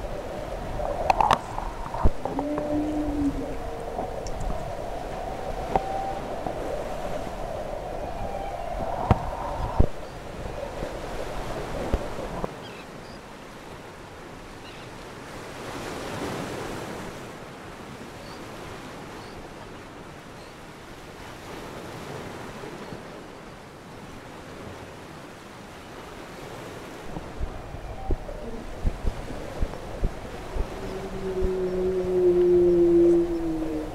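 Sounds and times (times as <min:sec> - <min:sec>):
wind buffeting microphone: 0:00.0 - 0:12.7, 0:27.0 - 0:33.9
open sea water: 0:00.0 - 0:33.9.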